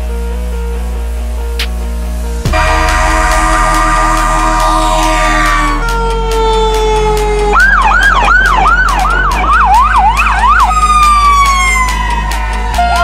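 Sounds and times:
electronic music with beat: 0:01.5 - 0:13.0
siren falling tone: 0:02.5 - 0:12.2.

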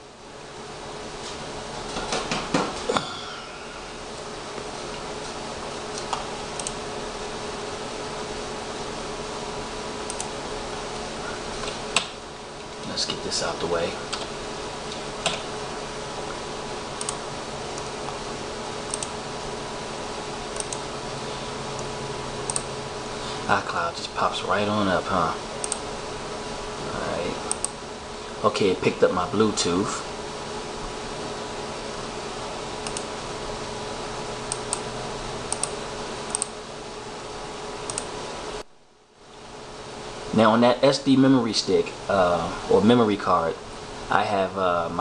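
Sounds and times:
faint hum: 0:00.0 - 0:45.0
computer mouse clicks: 0:05.9 - 0:06.8, 0:10.1 - 0:10.4, 0:17.0 - 0:17.2, 0:18.9 - 0:19.2, 0:20.5 - 0:20.9, 0:22.5 - 0:22.7, 0:25.6 - 0:25.8, 0:27.5 - 0:27.8, 0:32.8 - 0:33.1, 0:34.5 - 0:34.9, 0:35.5 - 0:36.6, 0:37.9 - 0:38.1.

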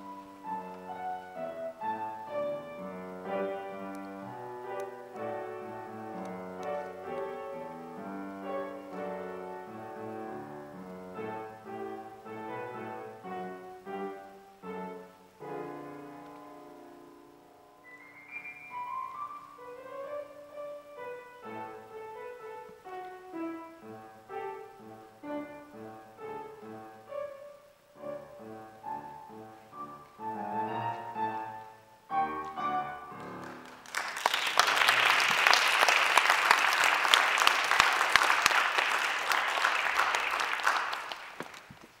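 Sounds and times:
solo grand piano: 0:00.0 - 0:42.0
audience applause: 0:33.4 - 0:42.0.

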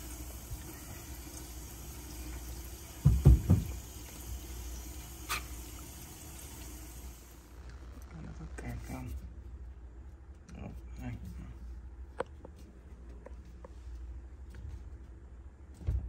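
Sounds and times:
tap water running into sink: 0:00.0 - 0:07.4.

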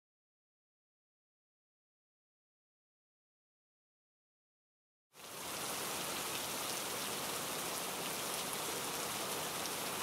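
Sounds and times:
rain falling steadily: 0:05.2 - 0:10.0.

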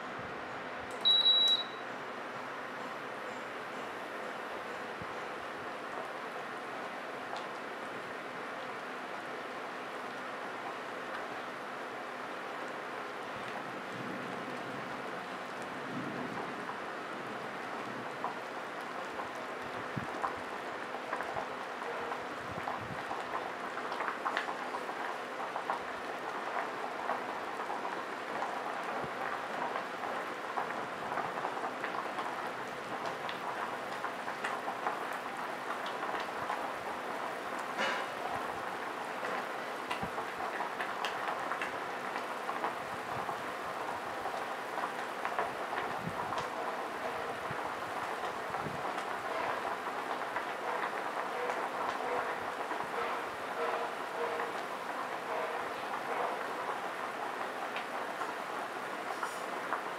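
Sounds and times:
soup boiling with bubbling pops: 0:05.0 - 0:59.9.

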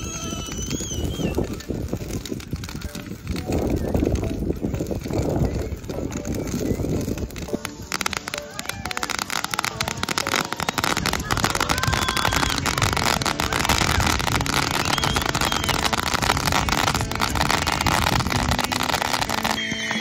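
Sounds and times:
fireworks crackling: 0:00.0 - 0:20.0.

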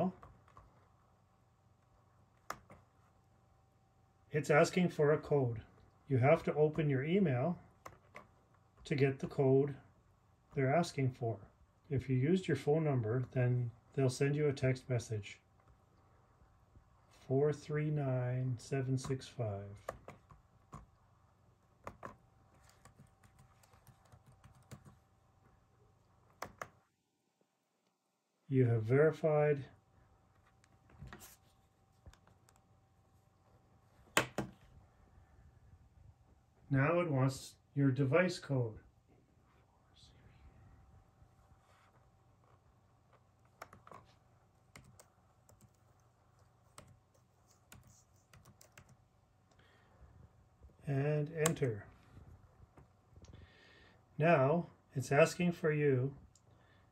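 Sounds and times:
faint laptop keystrokes: 0:02.4 - 0:02.9, 0:19.8 - 0:20.9, 0:21.8 - 0:25.0, 0:26.3 - 0:26.8, 0:43.4 - 0:49.0
faint keyboard key presses: 0:43.5 - 0:49.0.

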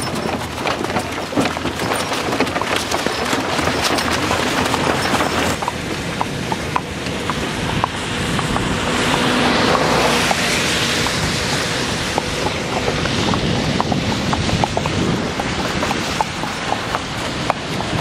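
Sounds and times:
horse hooves on asphalt: 0:00.0 - 0:18.0
wind on microphone: 0:05.6 - 0:18.0
car tyres hissing on wet road: 0:08.8 - 0:12.2.

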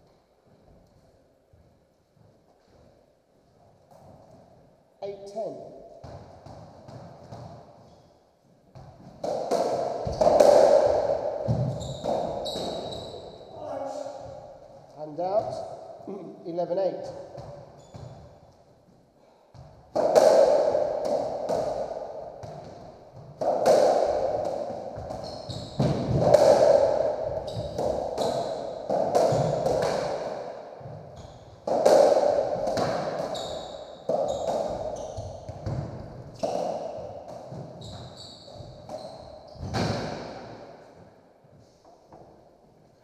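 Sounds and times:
ball struck by rackets: 0:08.8 - 0:13.0, 0:19.6 - 0:38.1
shoe squeaks on wooden floor: 0:11.6 - 0:13.5, 0:25.2 - 0:25.8, 0:33.3 - 0:35.5, 0:37.8 - 0:39.8.

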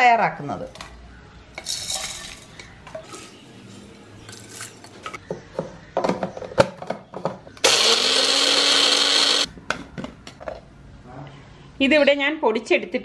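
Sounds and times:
blender motor grinding: 0:07.6 - 0:09.5.

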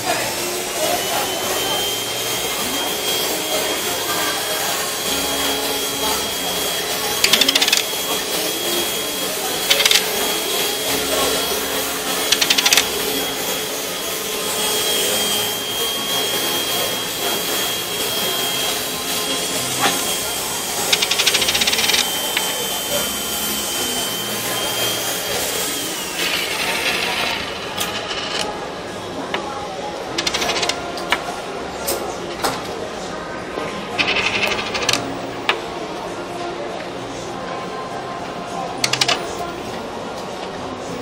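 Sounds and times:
coin rattling on wooden table: 0:12.3 - 0:12.8, 0:30.2 - 0:30.8, 0:34.0 - 0:35.0.

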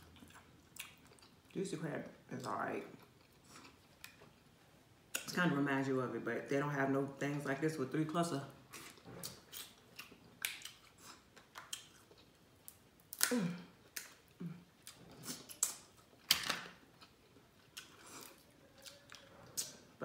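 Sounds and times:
chewing and mouth sounds: 0:00.0 - 0:01.6, 0:02.8 - 0:05.3, 0:08.7 - 0:16.3
crab shells cracking: 0:12.7 - 0:13.4.

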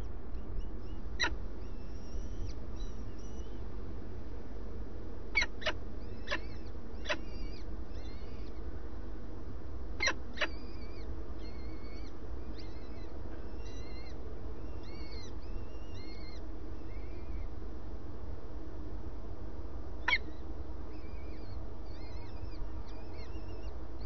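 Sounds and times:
falcon chicks begging peeps: 0:00.0 - 0:03.5, 0:05.4 - 0:08.6, 0:10.0 - 0:17.5
steady low hum: 0:00.0 - 0:24.0.

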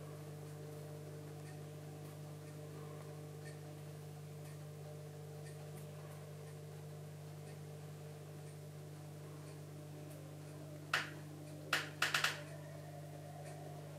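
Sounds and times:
aquarium pump humming: 0:00.0 - 0:13.9
sharp clicks: 0:11.0 - 0:12.5.

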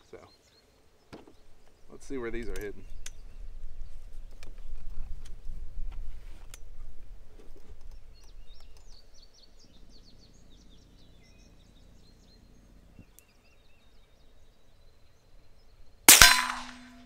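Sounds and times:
small bird chirping: 0:00.0 - 0:04.8, 0:07.4 - 0:16.0.

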